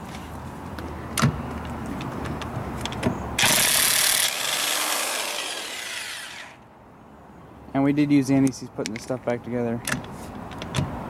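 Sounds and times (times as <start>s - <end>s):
socket clicking onto lug nut: 9.8s - 11.0s.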